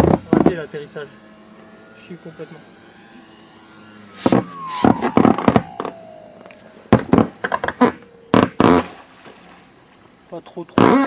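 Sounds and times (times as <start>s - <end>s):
model plane motor whining: 0.0s - 8.7s
loud irregular thumps: 4.2s - 9.0s.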